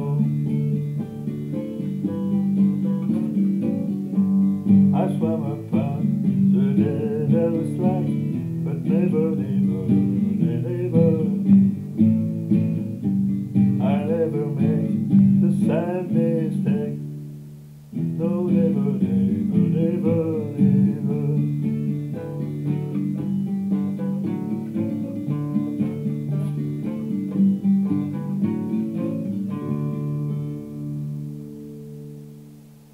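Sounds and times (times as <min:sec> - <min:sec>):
man singing: 0:00.0 - 0:01.1, 0:04.7 - 0:11.8, 0:13.8 - 0:17.2, 0:18.0 - 0:22.6, 0:24.6 - 0:27.5
acoustic guitar: 0:00.0 - 0:32.9.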